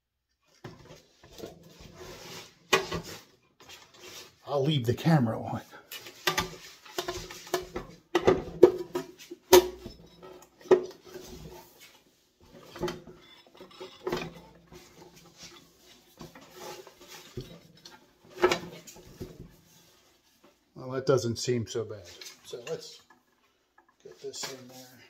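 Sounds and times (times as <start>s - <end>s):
metal clunks and rattles: 12.4s - 19.6s.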